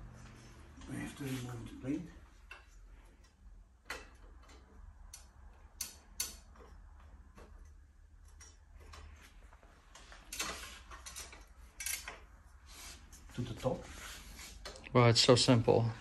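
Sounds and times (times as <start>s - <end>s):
clicks of parts being unfastened: 2.4s - 12.3s.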